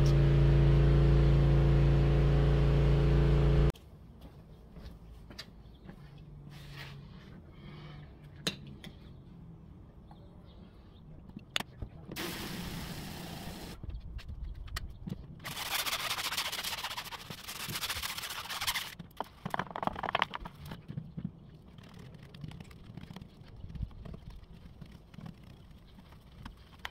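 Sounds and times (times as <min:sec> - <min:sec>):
hose nozzle spraying water: 0:12.2 - 0:13.8
scrubbing wheel by hand: 0:15.5 - 0:19.0.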